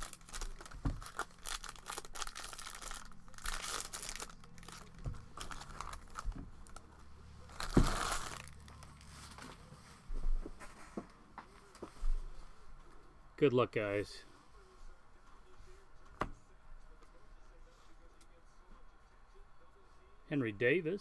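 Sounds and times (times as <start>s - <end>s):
foil wrapper rustling: 0.0s - 6.8s, 7.5s - 9.0s.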